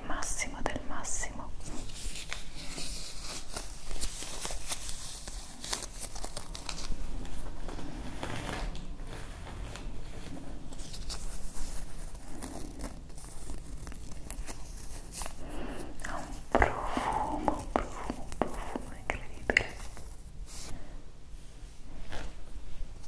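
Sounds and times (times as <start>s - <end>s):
leaves crinkling between fingers: 1.8s - 7.5s, 9.7s - 20.6s.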